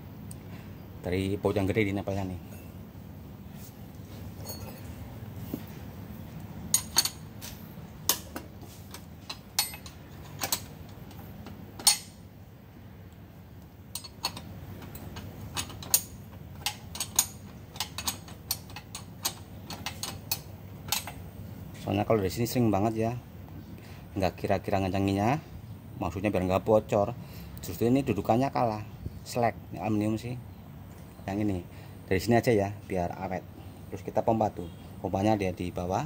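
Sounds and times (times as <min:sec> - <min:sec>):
steady low hum: 0:00.0 - 0:36.0
metal tools clicking: 0:06.7 - 0:07.3, 0:08.1 - 0:12.2, 0:13.9 - 0:21.2.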